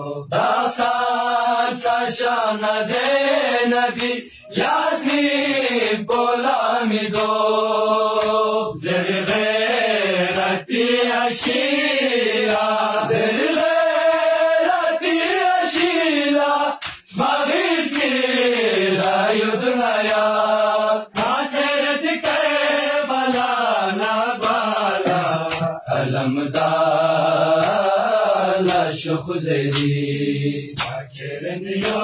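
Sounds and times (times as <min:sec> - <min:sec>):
men chanting a lament: 0:00.0 - 0:32.0
sharp slaps: 0:00.4 - 0:03.2, 0:03.8 - 0:05.4, 0:06.1 - 0:07.5, 0:08.1 - 0:13.7, 0:14.7 - 0:18.2, 0:18.9 - 0:19.3, 0:19.9 - 0:20.4, 0:21.1 - 0:23.8, 0:24.4 - 0:26.9, 0:27.5 - 0:28.0, 0:28.6 - 0:30.1, 0:30.7 - 0:31.2, 0:31.8 - 0:32.0.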